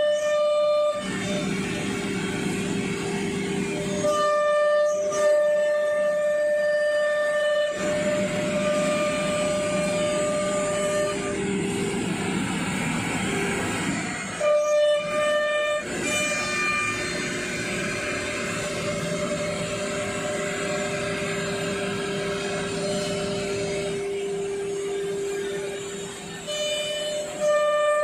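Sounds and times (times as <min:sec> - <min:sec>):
router spindle whine: 0:00.0 - 0:28.0
wood cutting noise: 0:00.7 - 0:28.0.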